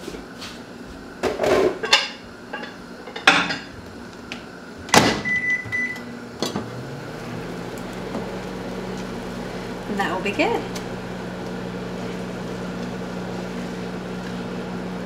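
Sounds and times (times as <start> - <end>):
microwave oven humming: 0.0 - 15.0
microwave door shutting: 4.9 - 6.8
keypad beeps: 5.2 - 6.1.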